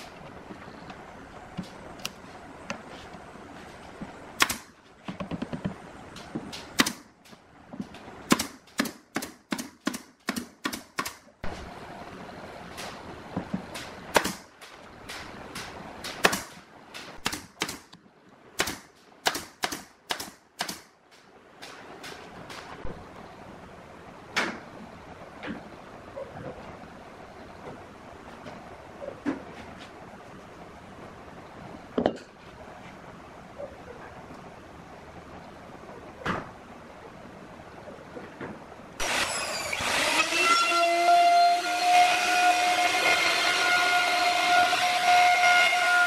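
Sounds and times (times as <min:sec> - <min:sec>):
nail gun shots into plywood: 0:08.3 - 0:11.2, 0:17.2 - 0:17.9, 0:18.6 - 0:20.9.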